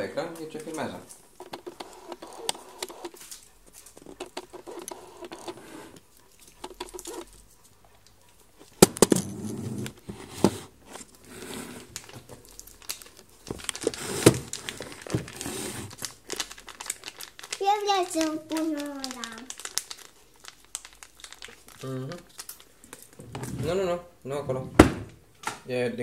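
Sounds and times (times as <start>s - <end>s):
camera handling rustling and clicks: 1.4s - 7.4s.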